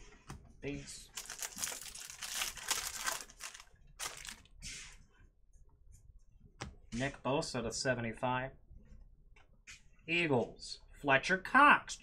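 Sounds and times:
trading cards rustling: 0:01.1 - 0:04.5.

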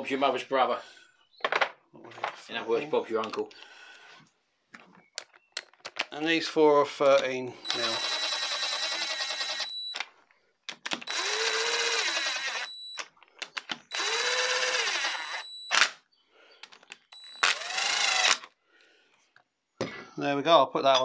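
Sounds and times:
power driver whining: 0:07.6 - 0:10.1, 0:10.7 - 0:16.0, 0:16.6 - 0:18.5.

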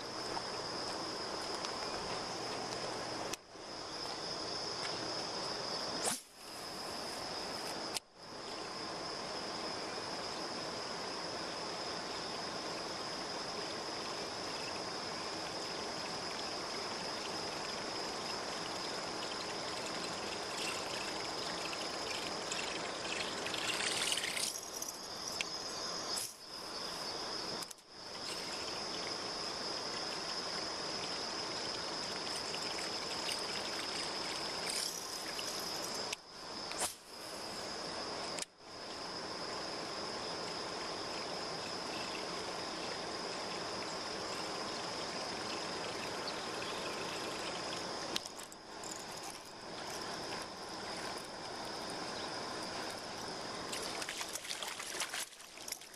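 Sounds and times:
insect chirring: 0:00.0 - 0:55.9
watery hiss: 0:05.9 - 0:07.8, 0:36.8 - 0:37.7
splashing at pond surface: 0:18.4 - 0:24.9, 0:53.7 - 0:55.9.

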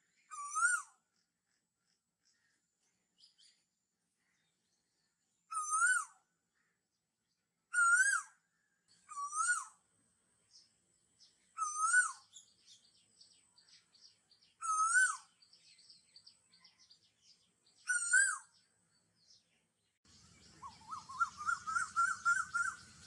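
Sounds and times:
bird chirps: 0:00.0 - 0:09.8, 0:10.4 - 0:23.0
whistled bird call: 0:00.1 - 0:01.0, 0:05.5 - 0:06.3, 0:07.7 - 0:08.4, 0:09.0 - 0:09.8, 0:11.5 - 0:12.6, 0:14.5 - 0:16.9, 0:17.7 - 0:18.7, 0:20.3 - 0:23.0.

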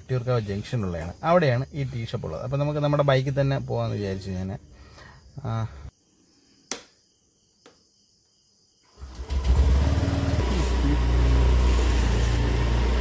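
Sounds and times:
scooter engine starting and idling: 0:08.9 - 0:13.0.

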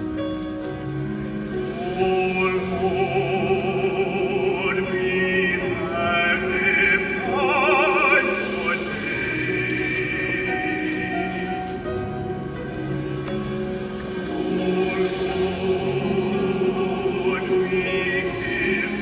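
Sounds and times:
choir singing held chords: 0:01.2 - 0:19.0
high voice singing with vibrato: 0:01.6 - 0:12.1, 0:14.3 - 0:19.0.

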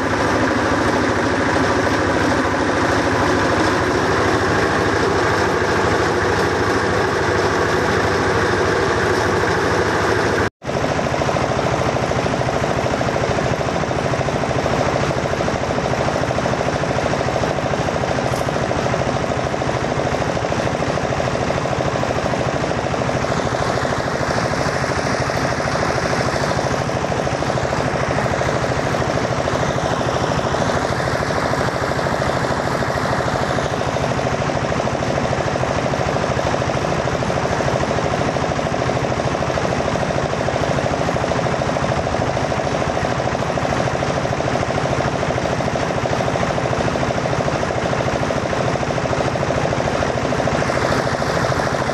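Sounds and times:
small engine running steadily: 0:00.0 - 0:51.9
fan rushing hiss: 0:50.1 - 0:51.9.

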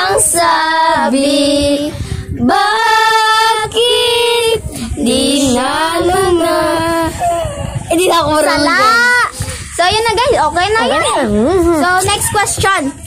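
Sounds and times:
girl singing a slow ballad: 0:00.0 - 0:08.9.

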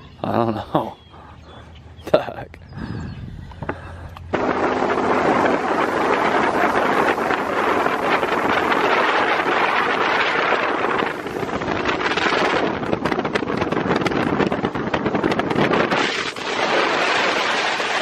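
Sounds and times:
boat motor and hull noise: 0:00.0 - 0:18.0
wind rushing over microphone: 0:01.4 - 0:18.0
sharp crackles: 0:15.8 - 0:18.0.

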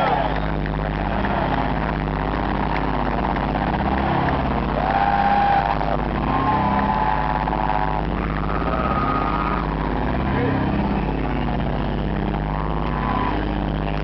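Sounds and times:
concert crowd din: 0:00.0 - 0:14.0
long held yells: 0:04.7 - 0:09.6.

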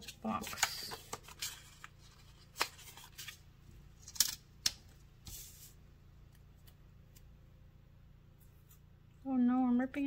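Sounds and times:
paper rustle: 0:00.0 - 0:03.4.

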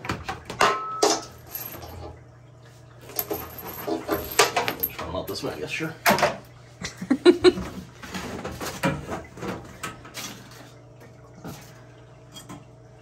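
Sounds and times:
rustling and scraping: 0:03.0 - 0:05.0.

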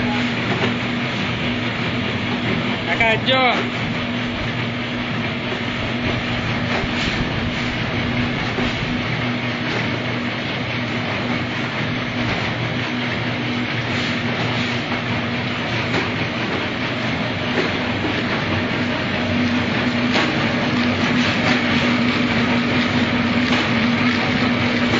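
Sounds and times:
motor hum: 0:00.0 - 0:24.9
mechanical clatter: 0:14.2 - 0:24.9.

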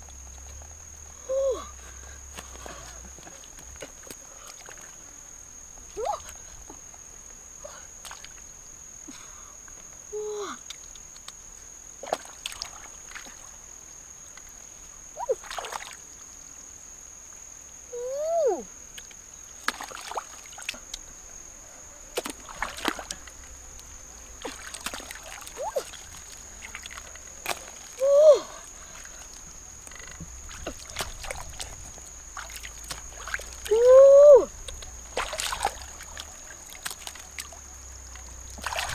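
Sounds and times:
hand splashing in water: 0:35.2 - 0:37.5, 0:38.6 - 0:38.9.

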